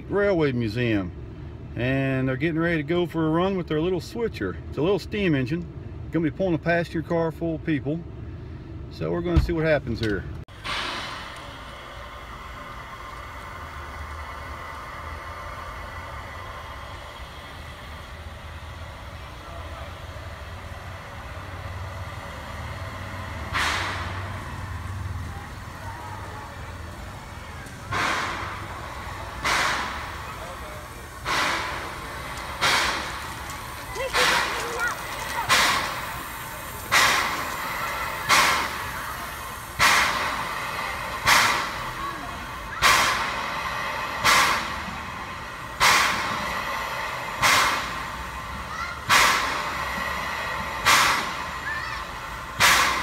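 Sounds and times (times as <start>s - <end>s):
rail yard rumble: 0.0s - 53.0s
loud hiss: 10.5s - 53.0s
steam locomotive chuffing: 10.5s - 53.0s.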